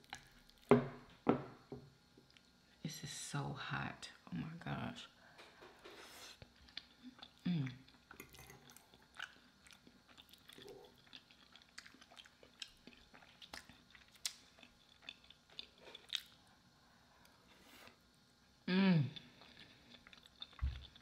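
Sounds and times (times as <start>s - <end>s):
soft chewing and mouth clicks: 5.8s - 16.5s, 19.1s - 21.0s.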